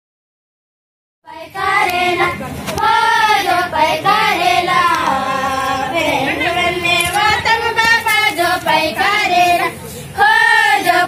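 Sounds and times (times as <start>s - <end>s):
girls singing in unison: 1.3s - 11.0s.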